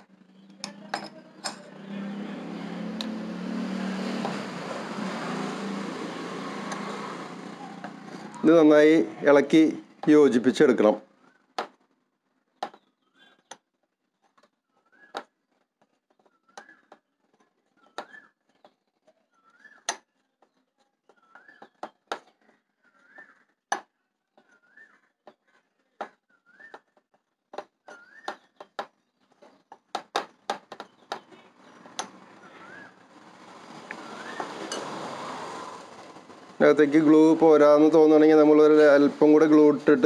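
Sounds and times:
bird whistled call: 14.7 - 15.4, 16.3 - 16.9, 17.8 - 18.4, 19.4 - 19.9, 21.2 - 21.8, 22.8 - 23.6, 24.5 - 25.2, 26.3 - 27.0, 27.8 - 28.6, 32.4 - 33.0, 34.0 - 34.7.

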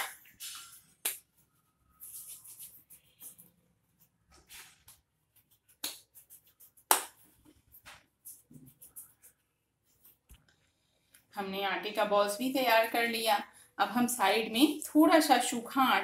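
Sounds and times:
hands rubbing and patting dough: 0.0 - 11.3.

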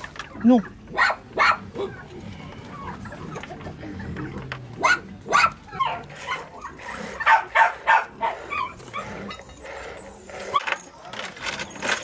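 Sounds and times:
dog barking: 0.9 - 2.0, 4.8 - 6.4, 7.2 - 9.1.

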